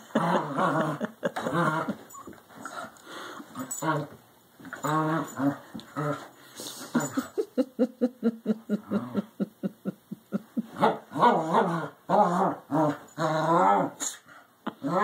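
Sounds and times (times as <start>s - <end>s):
dog grunting and growling: 0.0s - 2.0s.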